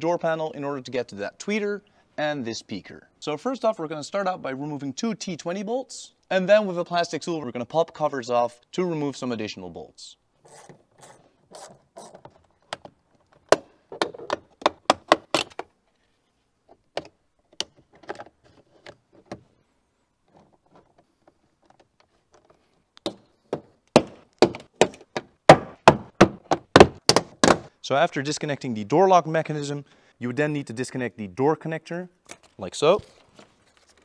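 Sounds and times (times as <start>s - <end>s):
trim tool prying plastic covers: 21.6s - 27.7s.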